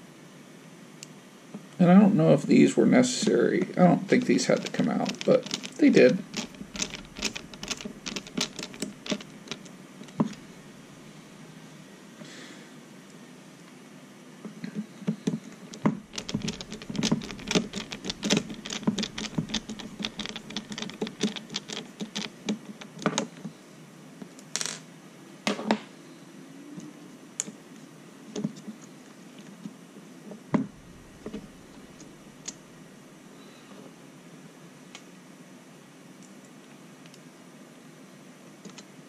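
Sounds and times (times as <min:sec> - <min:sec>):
small plastic clicks and rattles: 0:04.1 - 0:10.6, 0:14.7 - 0:23.4, 0:30.6 - 0:32.6.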